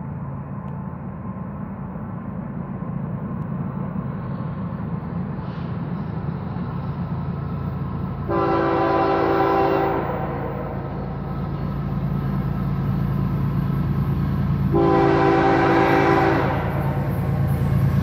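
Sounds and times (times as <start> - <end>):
diesel locomotive rumble: 0.0 - 18.0
train air horn chord: 8.3 - 11.0, 14.7 - 17.1.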